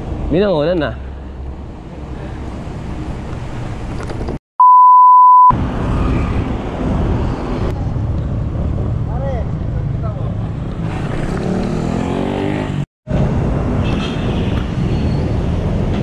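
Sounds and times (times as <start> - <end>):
road traffic noise: 0.0 - 4.4, 5.5 - 16.0
censor bleep: 4.6 - 5.5.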